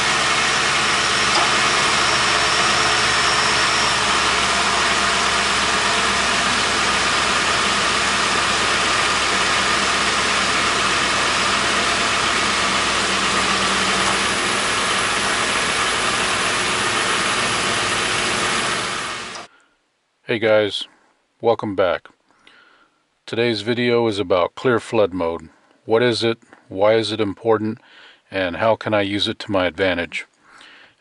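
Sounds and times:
car engine idling: 0.0s - 19.5s.

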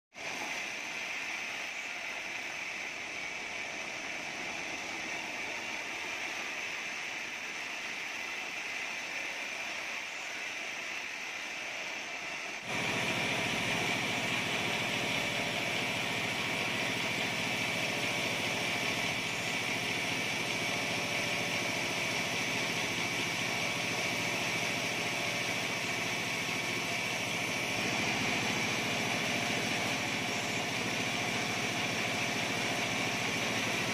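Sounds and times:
engine running: 12.6s - 33.9s.

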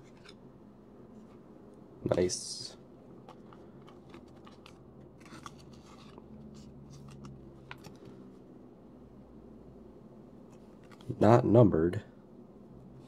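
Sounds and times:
trading cards flicking and scraping: 0.0s - 0.4s, 3.2s - 8.3s, 10.5s - 11.2s.

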